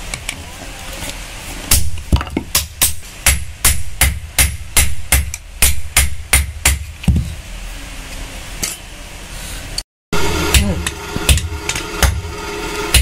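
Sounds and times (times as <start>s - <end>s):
hammer striking metal on anvil: 10.4s - 13.0s.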